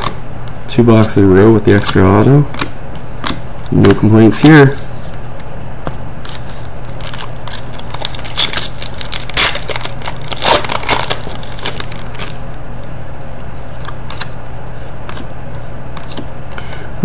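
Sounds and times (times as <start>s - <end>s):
cards rustling: 6.2s - 12.4s
foil wrapper crinkling: 6.2s - 12.4s.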